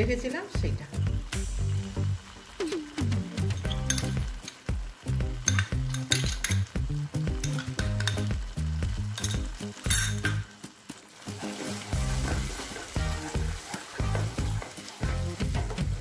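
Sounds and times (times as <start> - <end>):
gravy sizzling and popping: 0.0 - 16.0.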